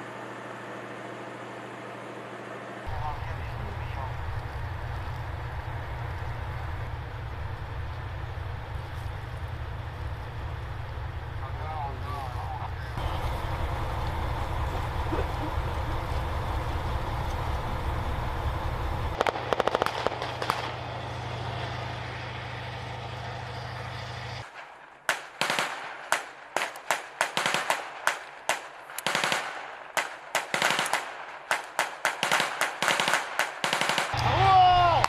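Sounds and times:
vehicle engine rumbling: 0.0 - 25.1
echoing small-arms fire: 18.9 - 21.6, 24.4 - 34.4
machine-gun fire: 19.2 - 20.9, 24.5 - 34.2.

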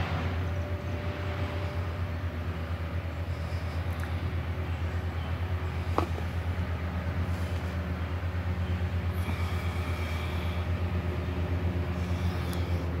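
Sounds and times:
pulsing mechanical drone: 0.0 - 13.0.

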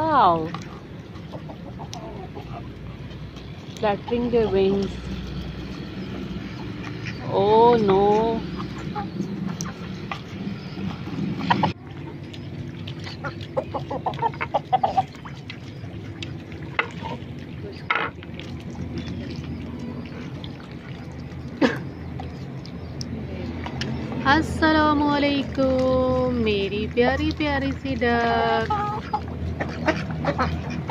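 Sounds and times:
low background hum: 0.0 - 30.9
ducks quacking: 0.3 - 3.2, 3.8 - 18.2, 28.1 - 30.9.

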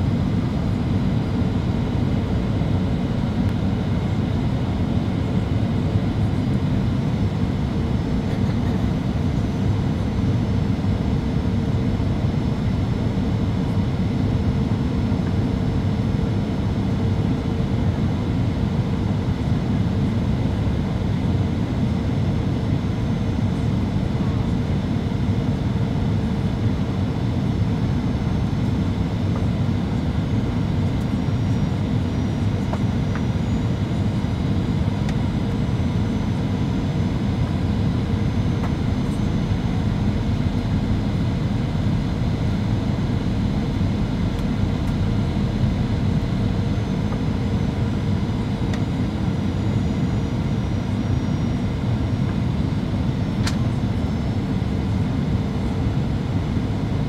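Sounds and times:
airflow over aircraft fuselage: 0.0 - 57.0
jet engines humming: 0.0 - 57.0.

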